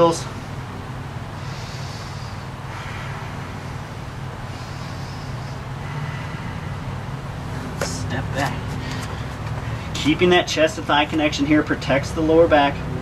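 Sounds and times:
room hum: 0:00.0 - 0:13.0
soft breaths: 0:01.1 - 0:07.8, 0:08.4 - 0:10.0.

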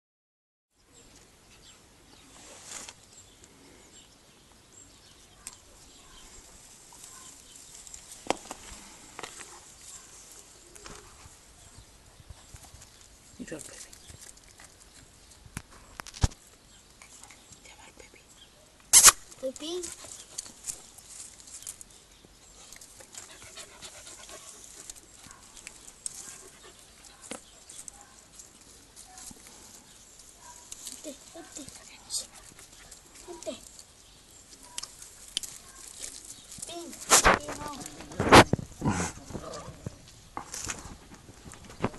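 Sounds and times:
brief rustle: 0:02.3 - 0:03.0, 0:34.6 - 0:41.9
puppies panting: 0:19.7 - 0:20.9, 0:22.5 - 0:28.3, 0:31.1 - 0:33.8.

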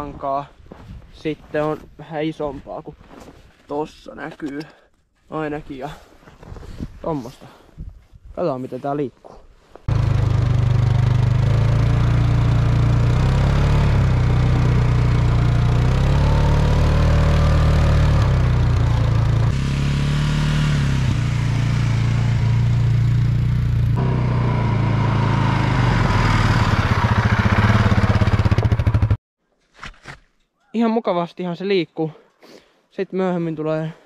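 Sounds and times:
atv engine under load: 0:09.9 - 0:29.2.

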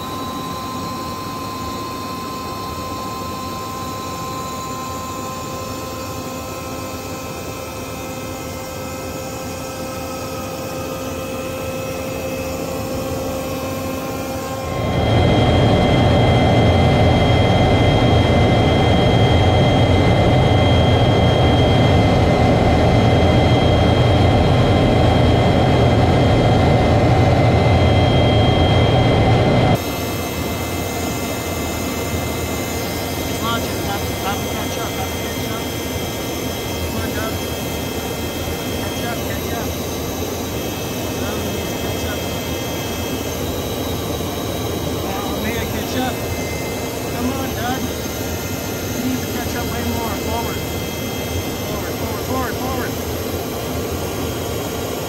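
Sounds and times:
jet engine and airflow rush: 0:00.0 - 0:55.0
whining tones: 0:00.0 - 0:55.0.

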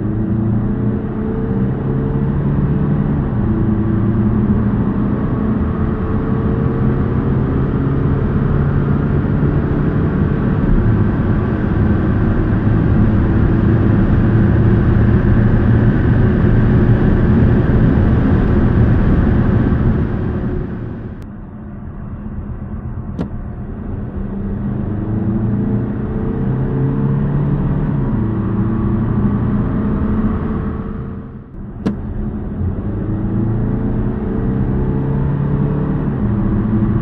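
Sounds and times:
diesel car engine accelerating: 0:00.0 - 0:37.0
wind and tyre noise: 0:00.0 - 0:37.0.

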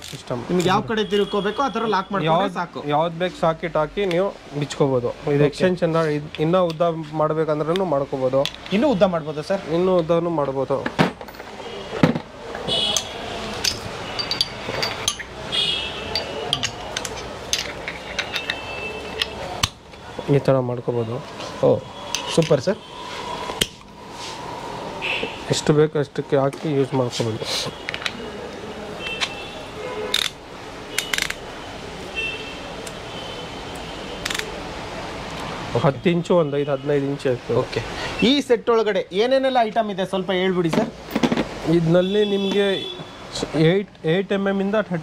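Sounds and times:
metal wrench parts clinking: 0:12.9 - 0:15.4, 0:16.1 - 0:19.4
short metallic rings: 0:13.7 - 0:16.9.

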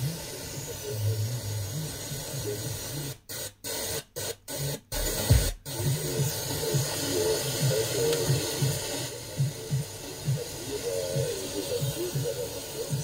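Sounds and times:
faint radio programme audio: 0:00.0 - 0:13.0
radio static hiss: 0:00.0 - 0:13.0
low thump: 0:05.0 - 0:05.6.

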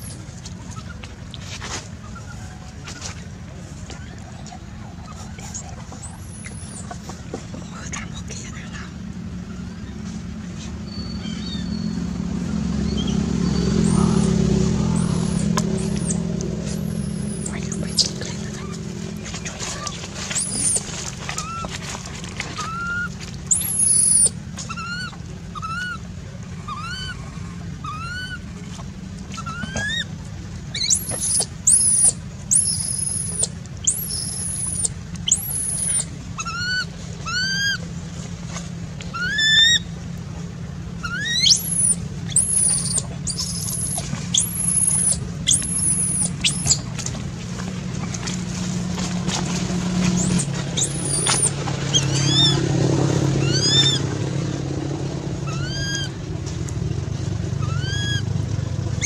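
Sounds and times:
steady low hum: 0:00.0 - 0:59.0
baby monkey squeaky coos and squeals: 0:05.1 - 0:07.0, 0:10.9 - 0:11.9, 0:13.8 - 0:18.8, 0:19.5 - 0:21.7, 0:22.6 - 0:28.4, 0:29.4 - 0:30.1, 0:30.7 - 0:37.8, 0:39.1 - 0:39.9, 0:41.0 - 0:46.8, 0:50.2 - 0:52.6, 0:53.4 - 0:54.0, 0:55.4 - 0:56.2, 0:57.6 - 0:58.3.

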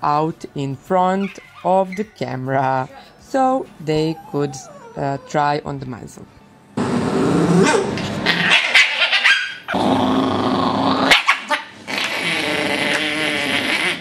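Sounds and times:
dog growling and snarling: 0:04.0 - 0:05.5, 0:07.0 - 0:14.0
dog barking sharply: 0:07.6 - 0:09.6.

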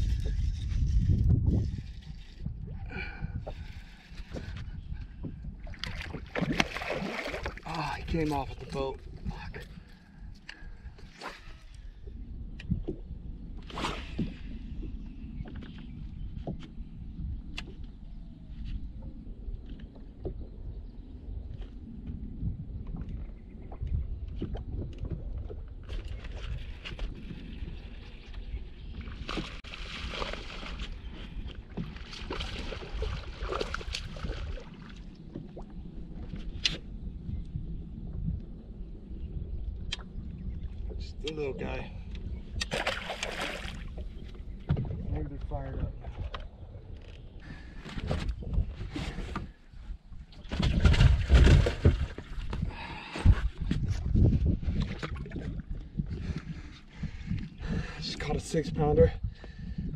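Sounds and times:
wind rumble on microphone: 0:00.0 - 0:59.9
water splashing: 0:05.6 - 0:09.0, 0:31.8 - 0:35.8, 0:42.6 - 0:44.1
fish splashing in water: 0:05.8 - 0:07.6, 0:42.7 - 0:43.9.

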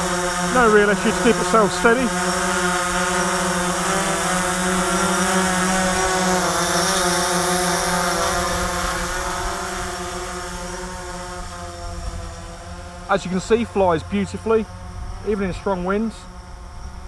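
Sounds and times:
drone propellers buzzing: 0:00.0 - 0:17.0
wind rumble on microphone: 0:14.7 - 0:17.0.

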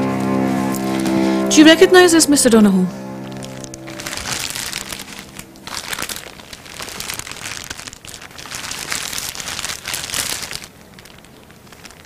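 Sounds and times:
plastic bag crinkling: 0:03.2 - 0:12.0.

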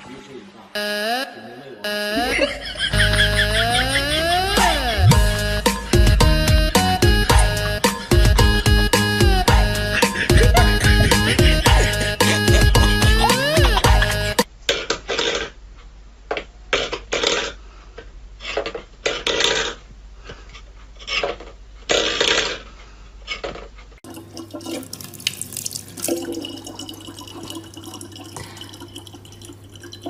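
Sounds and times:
water trickling from a tap: 0:24.0 - 0:30.0.

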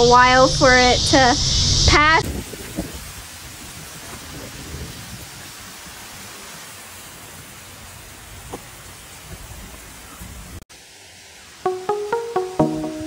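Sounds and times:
heavy rain on gravel: 0:02.2 - 0:12.3.

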